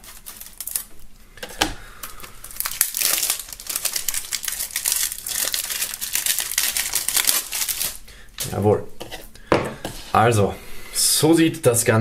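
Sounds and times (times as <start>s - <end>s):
cellophane crinkling and tearing: 0.0s - 8.6s.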